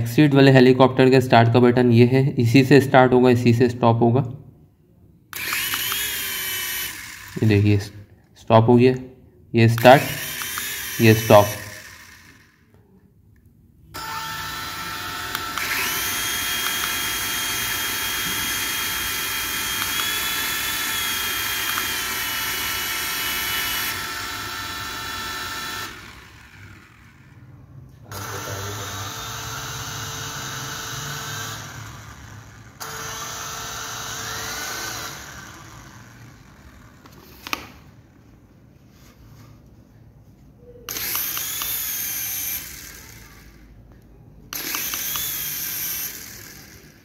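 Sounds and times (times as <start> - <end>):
toy helicopter rotor motors whining: 5.3 - 8.0, 9.7 - 12.8, 14.0 - 38.0, 40.7 - 43.8, 44.5 - 47.0
sharp click: 40.9 - 41.8, 44.5 - 45.4.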